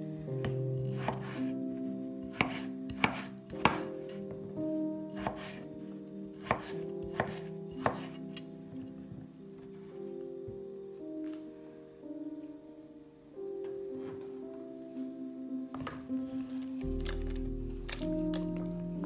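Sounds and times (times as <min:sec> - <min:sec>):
background music: 0:00.0 - 0:19.0
knife chopping on wooden board: 0:02.3 - 0:03.9, 0:05.2 - 0:05.6, 0:06.4 - 0:08.2.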